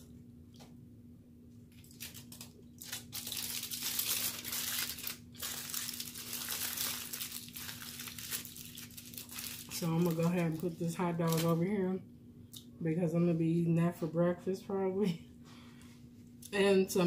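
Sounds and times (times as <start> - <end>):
foil wrapper crinkling: 1.7 - 11.7.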